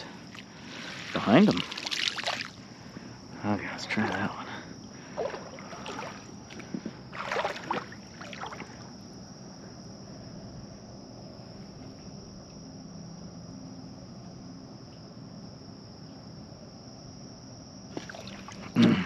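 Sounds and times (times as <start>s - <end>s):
net splashing through water: 0.3s - 2.6s, 5.1s - 8.9s, 17.9s - 19.0s.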